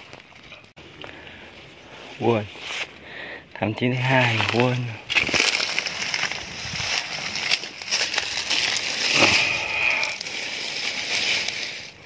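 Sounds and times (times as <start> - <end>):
rustling handling noise: 4.0 - 12.0.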